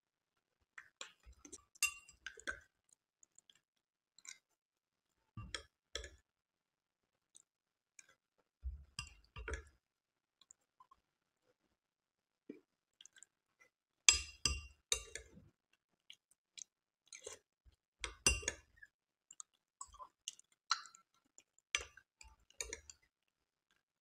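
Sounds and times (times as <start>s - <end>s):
quiet chewing: 12.5s - 13.7s, 16.1s - 17.5s, 18.6s - 23.9s
spoon clinking on glass bowl: 14.1s - 15.2s.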